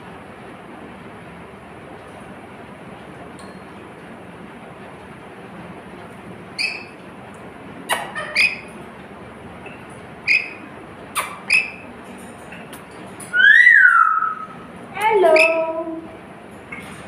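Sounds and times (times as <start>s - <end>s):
parrot high-pitched chirps: 6.6s - 7.0s, 7.9s - 8.7s, 10.2s - 11.9s, 13.3s - 14.6s, 15.2s - 15.7s.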